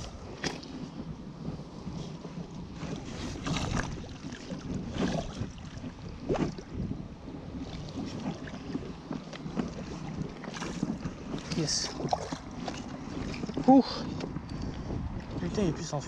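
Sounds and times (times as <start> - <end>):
steady wash of water: 0.0 - 16.0
net splashing water: 3.4 - 6.6.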